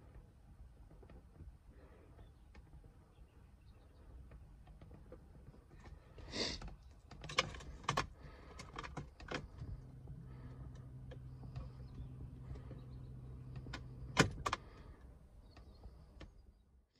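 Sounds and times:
low electrical hum: 0.0s - 16.9s
ignition switch and relay clicks: 13.4s - 14.8s.

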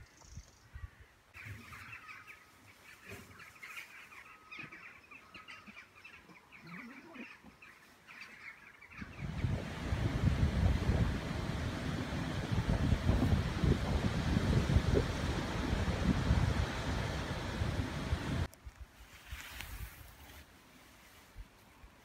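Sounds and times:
birds chirping: 0.0s - 12.3s
wind buffeting microphone: 9.0s - 18.5s.

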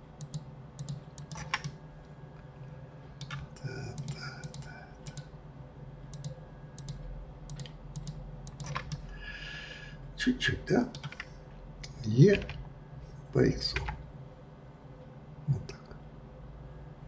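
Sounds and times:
steady low hum: 0.0s - 17.0s
computer keyboard and mouse clicks: 0.2s - 1.8s, 3.2s - 5.3s, 6.1s - 9.1s, 10.9s - 12.6s.

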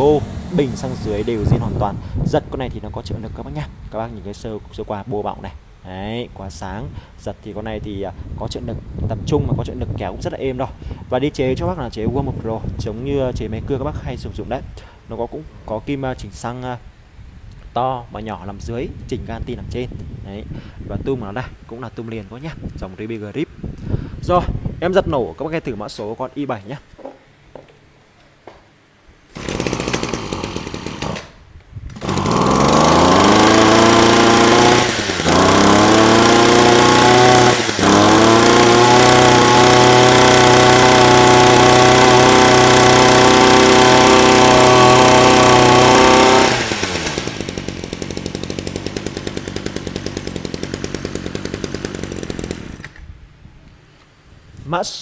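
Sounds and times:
brush cutter engine revving: 0.0s - 2.4s, 29.3s - 53.0s.

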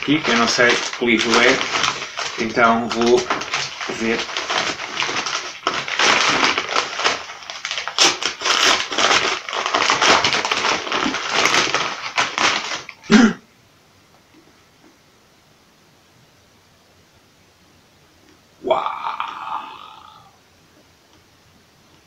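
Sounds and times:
paper mailer tearing and crinkling: 0.0s - 13.2s.

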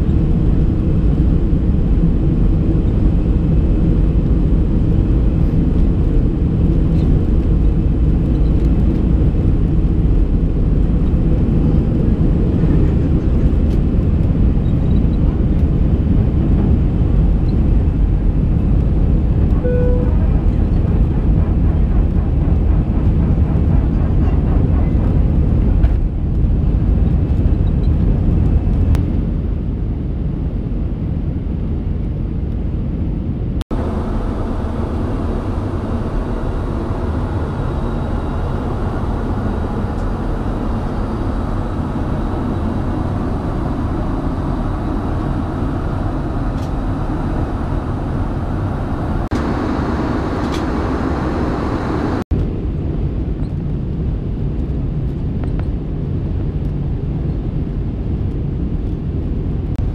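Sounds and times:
jet engine cabin rumble: 0.0s - 59.9s
cabin hum: 11.2s - 27.8s, 33.7s - 52.3s.

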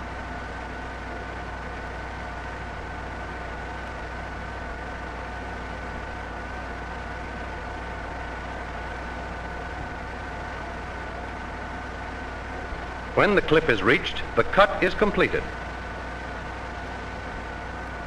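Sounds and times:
steady whining tones: 0.6s - 18.0s
noisy hiss: 12.6s - 18.0s.

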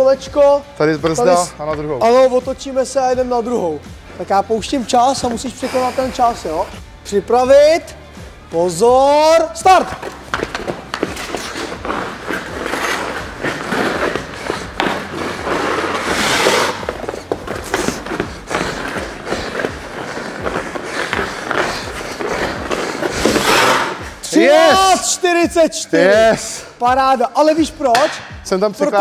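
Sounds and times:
skate blades scraping on ice: 5.2s - 6.7s, 9.7s - 24.7s.

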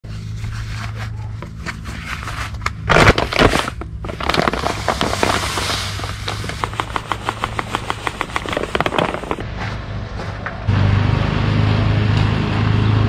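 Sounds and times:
plastic bag crinkling: 2.1s - 9.4s
granules pouring into plastic hopper: 2.9s - 9.4s.

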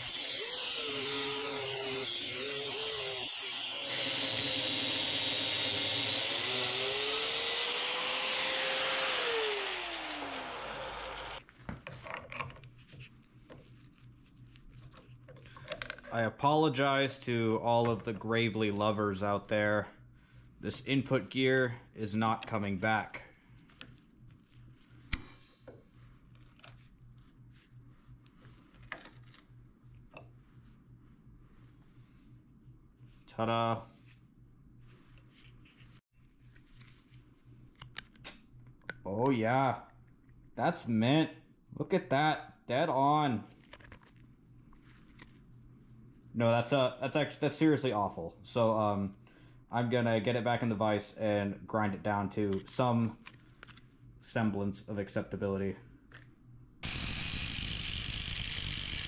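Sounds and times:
angle grinder cutting steel: 0.0s - 11.4s, 56.8s - 59.0s.

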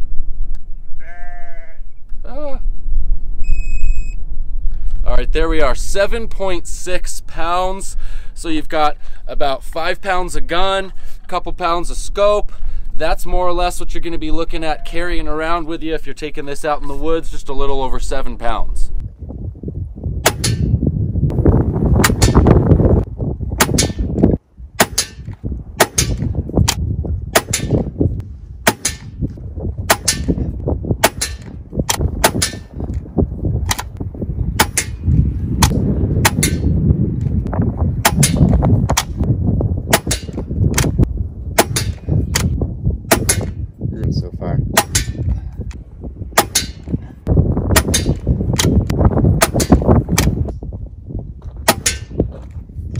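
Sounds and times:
air rifle shots: 20.2s - 20.8s, 22.0s - 22.5s, 23.6s - 24.2s, 24.8s - 27.9s, 28.6s - 29.2s, 29.9s - 30.4s, 31.0s - 33.0s, 34.6s - 35.0s, 35.6s - 36.8s, 38.0s - 39.3s, 39.9s - 41.0s, 41.6s - 43.6s, 44.7s - 45.3s, 46.4s - 46.9s, 47.7s - 48.8s, 49.4s - 50.4s, 51.7s - 52.2s.

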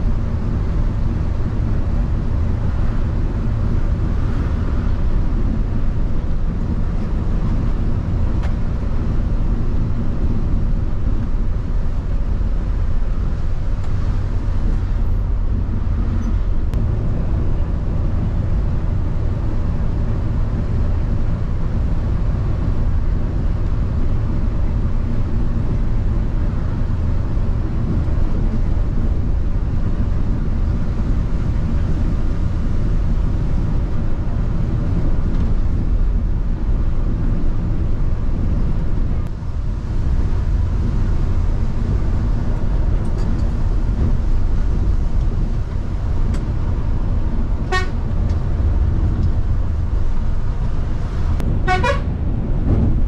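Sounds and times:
bus diesel engine drone: 0.0s - 53.0s.

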